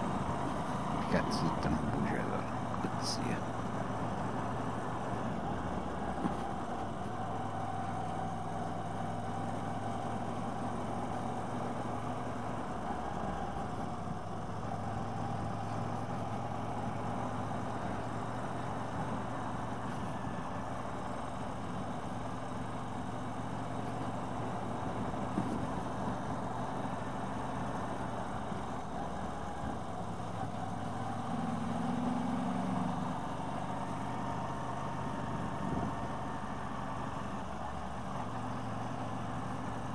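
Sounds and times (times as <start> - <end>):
wind and road noise: 0.0 - 39.9.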